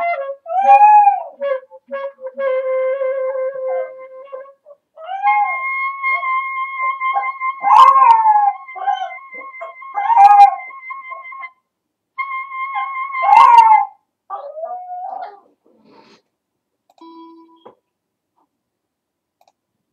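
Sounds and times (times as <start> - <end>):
clarinet holding long note: 0.0 - 11.5, 12.2 - 13.8
small dog howling: 0.5 - 1.4, 5.0 - 11.3, 12.5 - 15.5.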